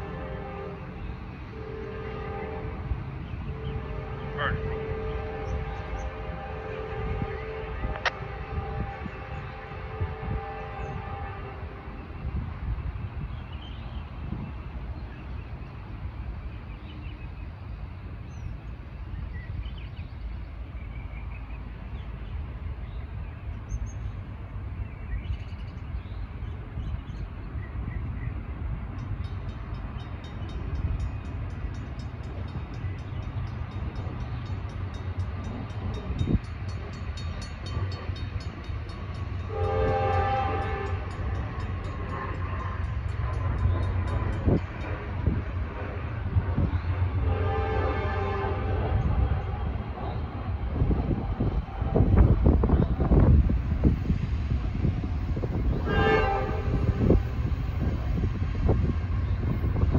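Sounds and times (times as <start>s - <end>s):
train horn blast: 0.0s - 12.4s, 39.4s - 44.6s, 46.6s - 49.6s, 55.4s - 57.9s
train rumble: 0.0s - 59.9s.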